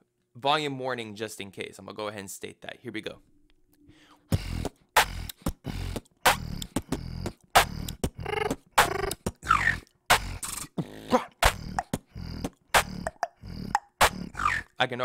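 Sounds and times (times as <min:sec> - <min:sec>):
person beatboxing: 0:04.3 - 0:14.8.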